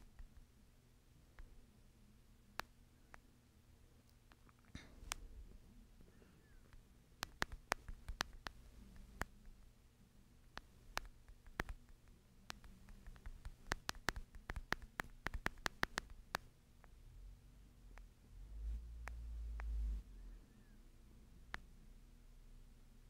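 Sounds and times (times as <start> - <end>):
low steady hum: 0.0 - 23.0
faint sharp clicks: 6.1 - 9.7, 10.4 - 17.0, 17.9 - 20.0, 21.4 - 21.8.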